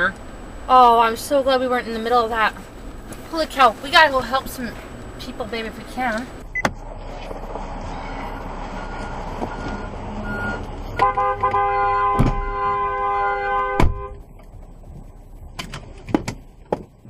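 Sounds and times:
vehicle road and engine noise: 0.0s - 17.0s
vehicle horn: 11.0s - 14.2s.

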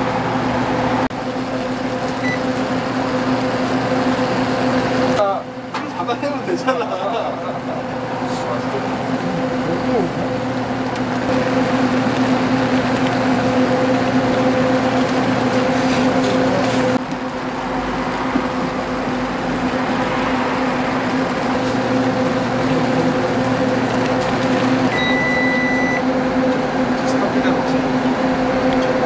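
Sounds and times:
cooking machine humming: 0.0s - 29.0s
short electronic beep: 2.2s - 2.4s, 24.9s - 26.0s
water boiling: 7.4s - 29.0s.

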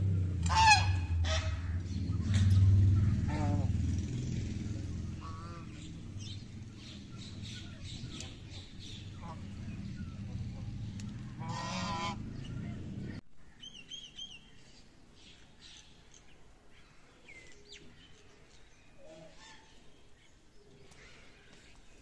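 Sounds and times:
low rumble: 0.0s - 13.2s
goose honking: 0.4s - 3.8s, 5.2s - 5.9s, 9.0s - 10.7s, 11.3s - 12.7s
small bird chirping: 5.5s - 11.3s.

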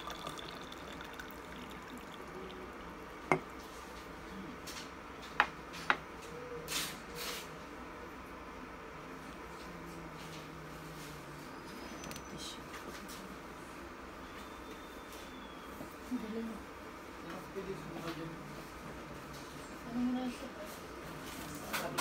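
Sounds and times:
hot water pouring into mug: 0.0s - 3.9s
mug clinking on glass: 3.3s - 3.5s.

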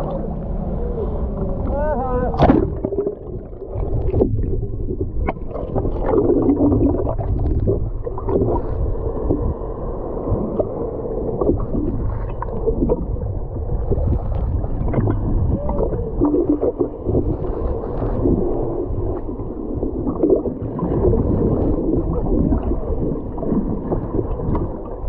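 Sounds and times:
steady low rumble: 0.0s - 25.0s
whale moaning calls underwater: 15.0s - 17.6s.

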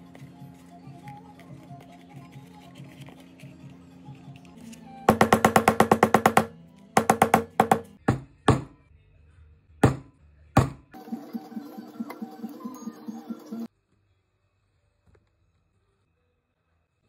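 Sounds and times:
background music: 0.0s - 8.9s, 9.8s - 13.7s
mallet striking metal chisel: 5.1s - 8.7s.

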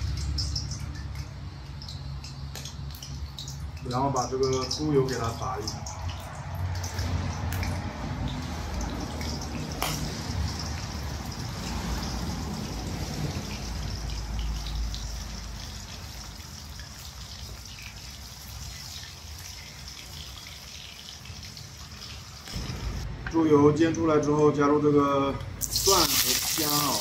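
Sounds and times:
pork fat sizzling in a wok: 8.4s - 23.0s, 25.6s - 27.0s.

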